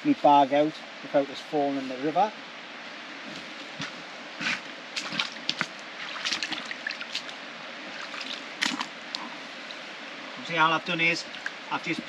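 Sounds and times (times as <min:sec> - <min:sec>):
river flowing: 0:00.0 - 0:12.0
water sloshing and splashing: 0:03.3 - 0:10.1, 0:11.2 - 0:12.0.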